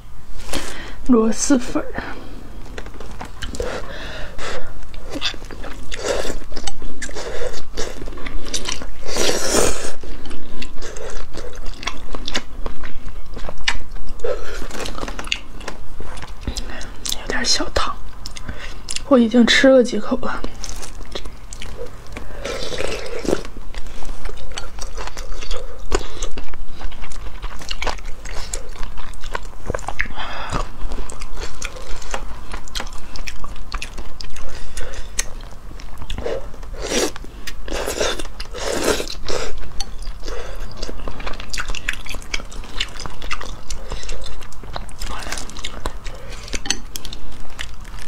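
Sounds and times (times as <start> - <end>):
chewing and biting: 2.6 - 17.4, 20.4 - 48.0
slurping noodles: 36.2 - 39.6.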